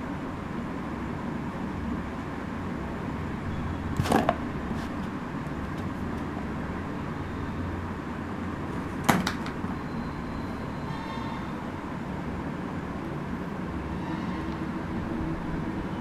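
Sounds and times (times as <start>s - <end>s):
toy figures knocking in cardboard box: 9.1s - 9.5s.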